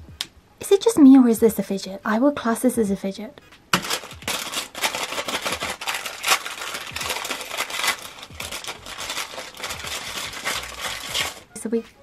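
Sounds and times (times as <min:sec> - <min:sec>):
plastic bag crinkling and tearing: 0:03.7 - 0:11.5.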